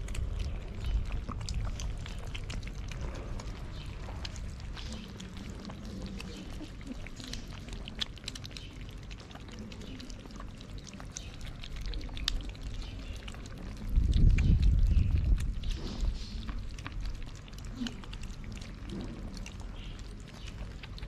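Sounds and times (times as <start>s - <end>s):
low rumble: 0.0s - 7.8s
cats chewing and lapping: 0.0s - 21.0s.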